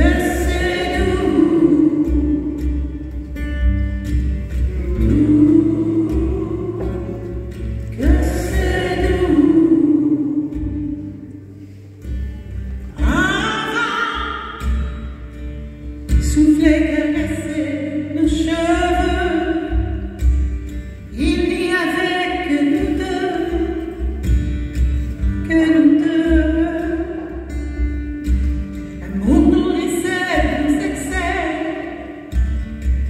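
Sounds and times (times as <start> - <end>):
acoustic guitar: 0.0 - 33.0
person singing: 4.6 - 11.6.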